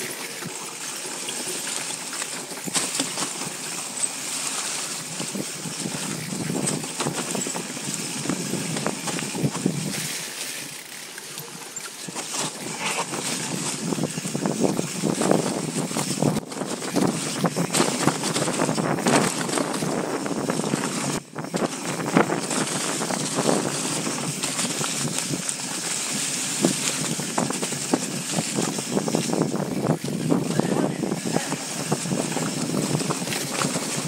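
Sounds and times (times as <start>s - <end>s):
tyres on dirt and rock: 0.0s - 34.0s
wind rushing over microphone: 5.0s - 10.2s, 12.5s - 34.0s.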